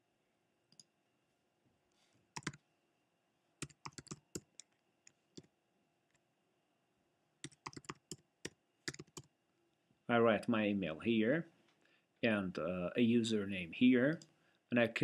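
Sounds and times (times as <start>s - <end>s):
typing on a computer keyboard: 2.4s - 2.6s, 3.6s - 4.8s, 7.4s - 9.3s.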